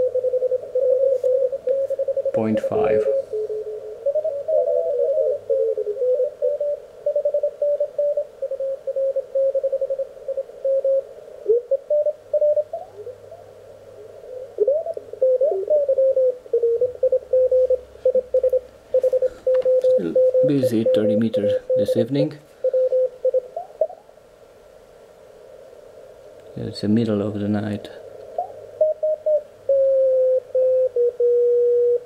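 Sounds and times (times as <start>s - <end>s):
radio band noise: 1.3s - 5.2s, 19.0s - 22.8s, 26.5s - 28.4s
morse code tones: 17.3s - 23.4s.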